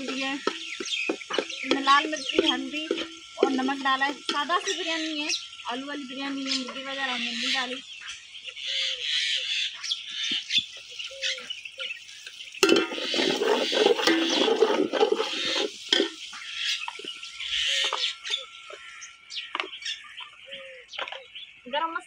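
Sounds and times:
ladle stirring in metal pot: 0.0 - 4.8, 12.6 - 17.2
onions frying: 0.0 - 4.8, 10.2 - 19.0.

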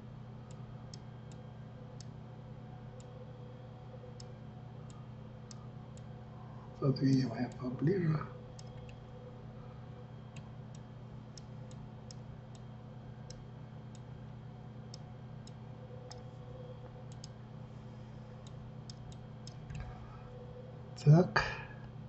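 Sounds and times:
steady low hum: 0.0 - 22.0
computer mouse clicks: 8.6 - 9.0, 14.9 - 17.4, 18.4 - 20.0.

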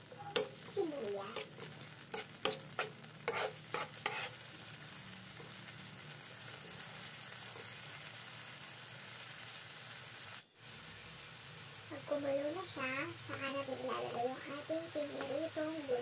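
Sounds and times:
onions sizzling in a pan: 0.0 - 16.0
spatula knocking and scraping pan: 1.4 - 4.4.

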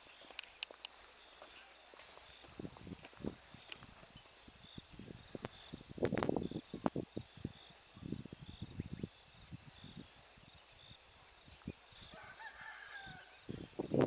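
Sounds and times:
rooster crowing faintly: 12.1 - 13.5.

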